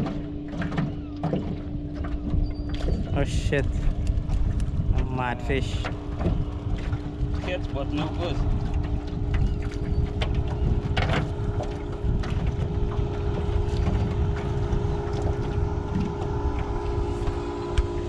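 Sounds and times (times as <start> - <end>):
steady low hum: 0.0 - 18.0
water splashing and dripping: 0.0 - 18.0
wind buffeting microphone: 0.0 - 18.0.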